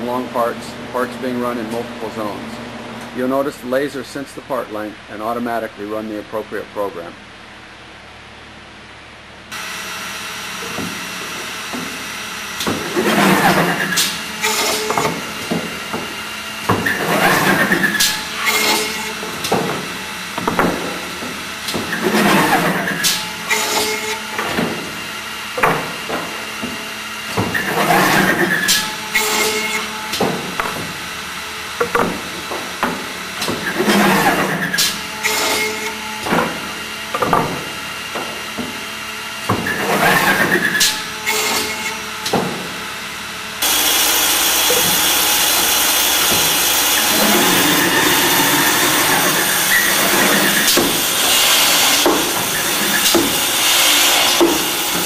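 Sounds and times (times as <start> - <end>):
machine spindles whirring: 9.5 - 55.0
clamps clicking and knocking: 31.8 - 33.9.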